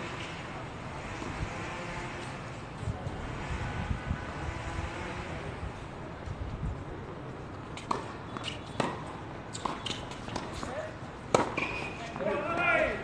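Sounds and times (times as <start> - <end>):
city traffic rumble: 0.0 - 13.0
tennis ball bouncing on court: 7.8 - 12.3.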